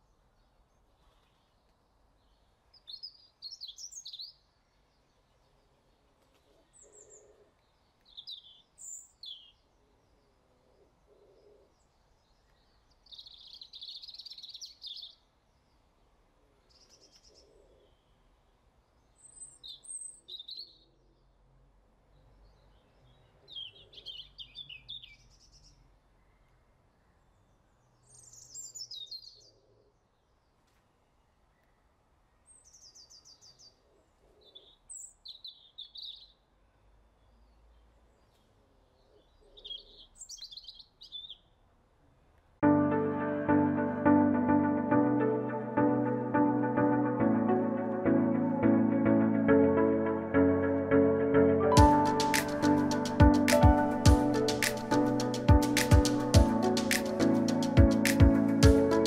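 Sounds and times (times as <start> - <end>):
small birds chirping and trilling: 0.0 - 16.0, 18.9 - 21.4, 22.1 - 30.7, 32.4 - 36.5, 37.2 - 41.6.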